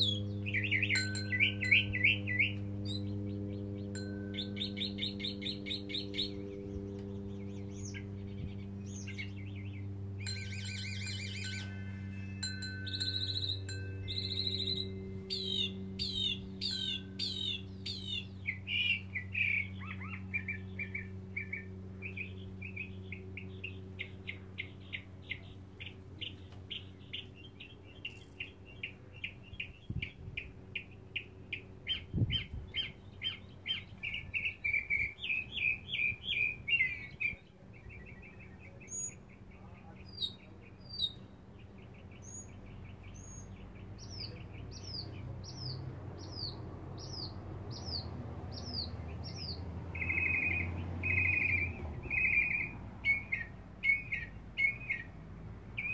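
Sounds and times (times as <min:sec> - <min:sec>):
mockingbird singing: 0:00.0 - 0:55.2
steady low hum: 0:00.0 - 0:55.9.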